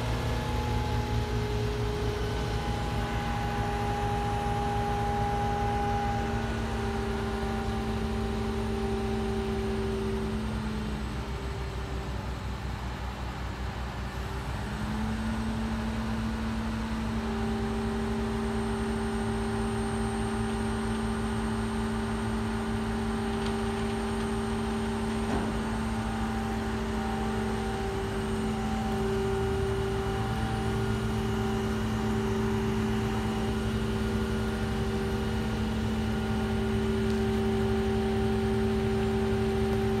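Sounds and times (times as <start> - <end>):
crane engine running: 0.0 - 40.0.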